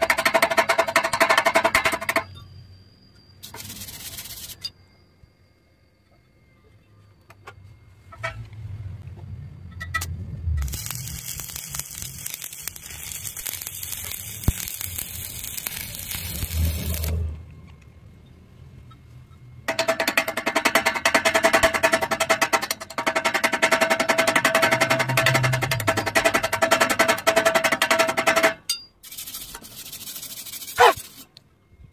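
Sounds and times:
welding arc crackling and hissing: 3.4s - 4.6s, 10.6s - 17.3s.

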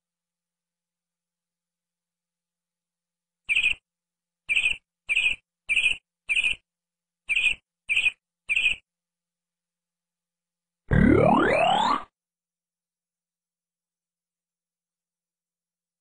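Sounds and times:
bird chirping: 3.5s - 3.8s, 4.5s - 6.6s, 7.2s - 8.8s.

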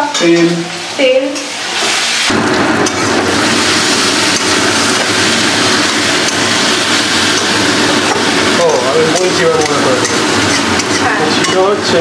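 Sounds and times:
chicken sizzling in hot oil: 0.0s - 12.0s
spatula scraping pan: 2.8s - 12.0s.

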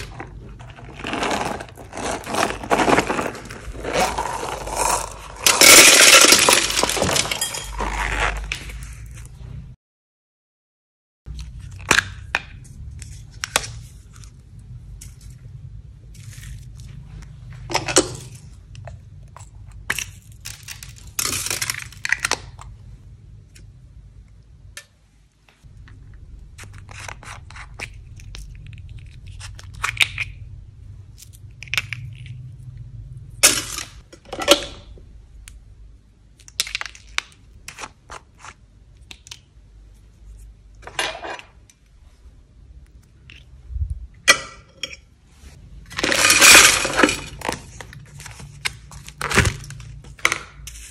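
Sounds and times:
low steady hum: 11.3s - 50.9s.

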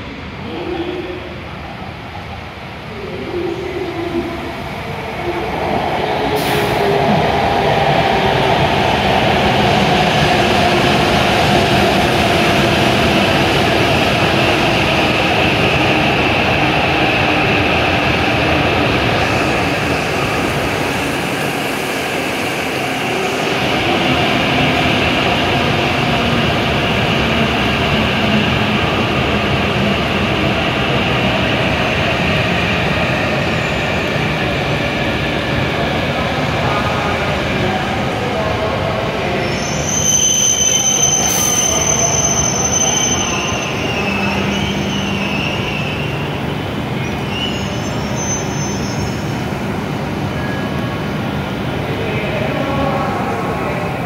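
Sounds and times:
train braking tones: 39.4s - 46.3s.

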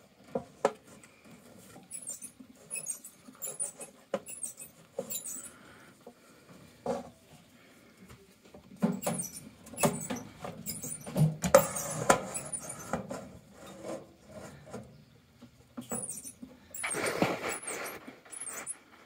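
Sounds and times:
rat claws scratching metal bowl: 1.8s - 5.5s, 9.0s - 14.6s, 15.8s - 18.9s.

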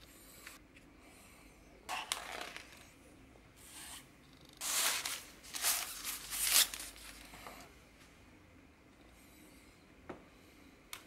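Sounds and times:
cardboard packaging rustling: 4.6s - 7.3s.

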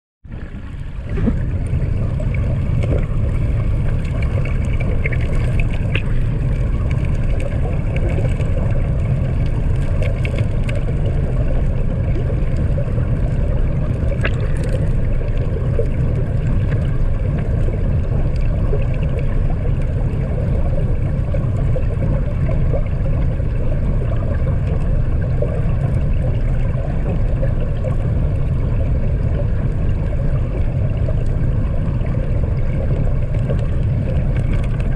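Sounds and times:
muffled underwater river rumble: 0.2s - 34.9s.

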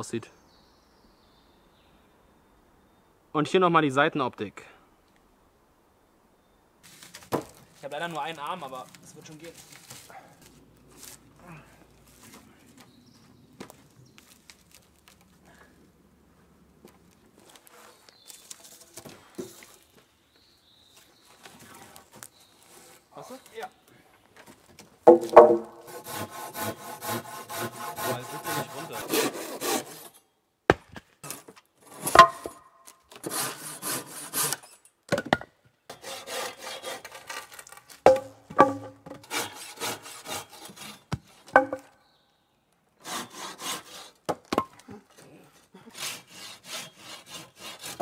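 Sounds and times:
wood knocking: 25.0s - 25.9s, 32.1s - 32.6s, 38.0s - 39.2s, 41.1s - 41.9s
hand saw cutting wood: 25.1s - 30.2s, 33.1s - 34.8s, 35.9s - 37.8s, 38.6s - 41.6s, 43.0s - 44.2s, 45.5s - 48.0s.

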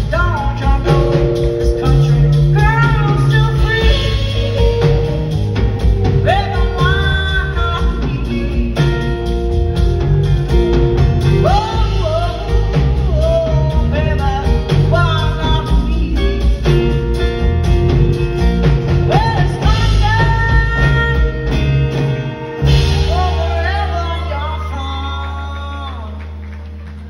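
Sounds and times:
lead vocal singing: 0.0s - 9.3s, 19.1s - 26.4s
live band playing: 0.0s - 27.0s.

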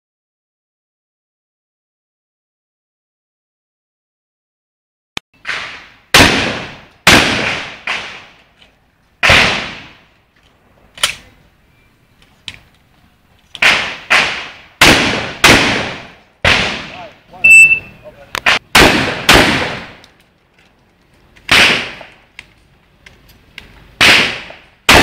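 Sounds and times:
shotgun shots with ringing tail: 5.4s - 8.4s, 9.2s - 10.0s, 13.6s - 17.1s, 18.4s - 20.0s, 21.5s - 22.1s, 24.0s - 25.0s
shells loading clicks: 10.4s - 11.3s.

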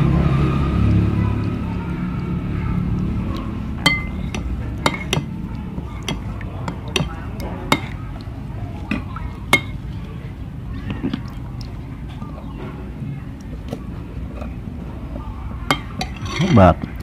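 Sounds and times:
metal spoon clinking on plate: 3.8s - 5.3s, 6.0s - 8.0s, 8.9s - 9.8s, 15.7s - 17.0s.

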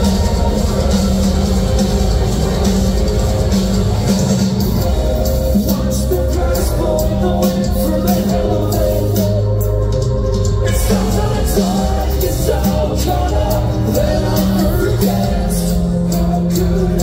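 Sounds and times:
vocals: 0.0s - 1.5s, 5.2s - 17.0s
pounding drums: 0.0s - 9.3s
bass: 0.0s - 17.0s
distorted guitars: 0.0s - 17.0s.

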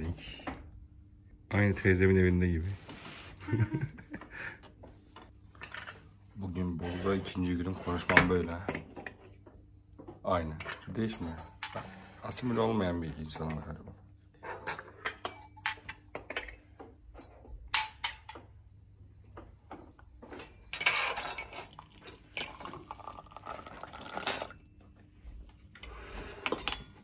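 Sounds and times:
glass and cutlery clinking: 10.6s - 12.0s, 14.4s - 18.5s, 20.2s - 24.8s, 26.4s - 27.0s
tea pouring into a glass: 21.6s - 24.6s.

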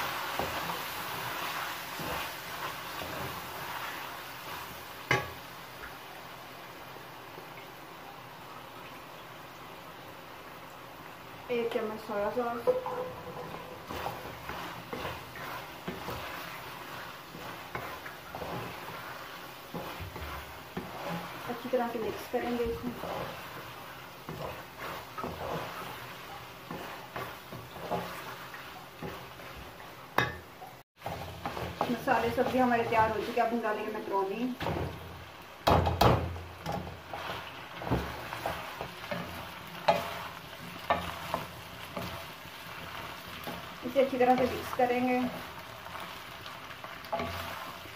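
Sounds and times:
wooden spoon scraping a pan: 0.0s - 5.4s, 11.6s - 30.4s, 31.0s - 35.4s, 36.0s - 47.9s
light sizzle: 0.0s - 47.9s
colander knocking on pan: 12.6s - 14.0s, 35.6s - 36.9s.

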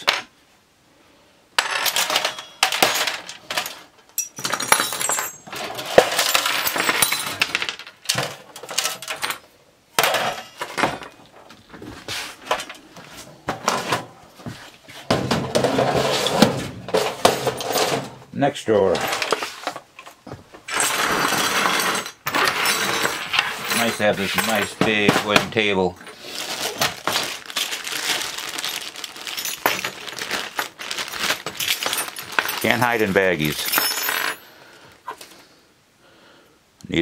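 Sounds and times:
small metal parts clattering on wood: 1.6s - 11.6s, 15.1s - 18.2s, 18.9s - 34.5s.

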